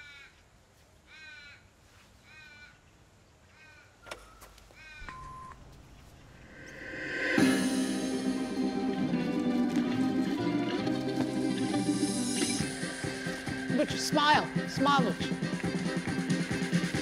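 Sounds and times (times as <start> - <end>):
crow cawing: 0.0 - 0.4, 1.1 - 2.8, 3.5 - 4.1, 4.7 - 5.8
short steady beep: 5.0 - 6.0
music: 6.6 - 17.0.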